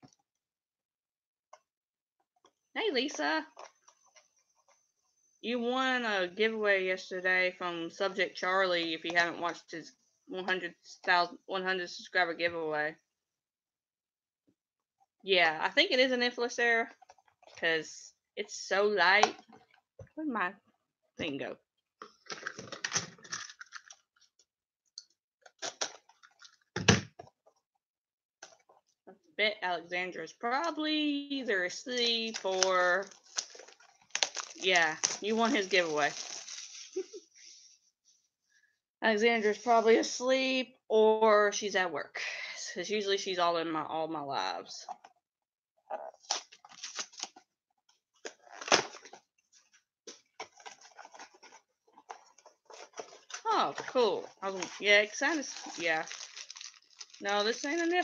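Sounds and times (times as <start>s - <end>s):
packaging crinkling: 22.1s - 24.1s, 32.2s - 37.0s, 46.2s - 47.4s, 48.2s - 58.0s.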